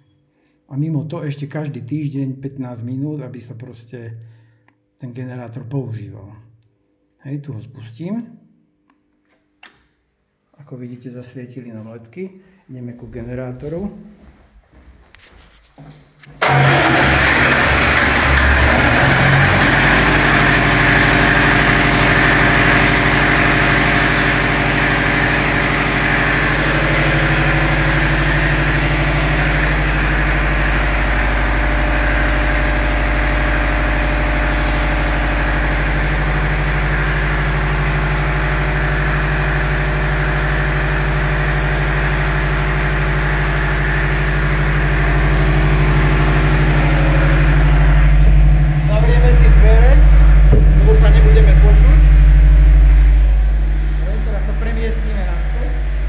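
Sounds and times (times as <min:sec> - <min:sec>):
generator engine running: 0:16.4 - 0:56.0.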